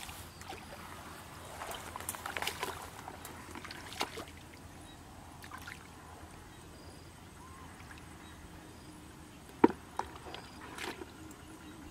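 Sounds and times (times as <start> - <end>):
muddy water sloshing and splashing: 0.0 - 4.7, 5.4 - 6.0, 9.6 - 11.4.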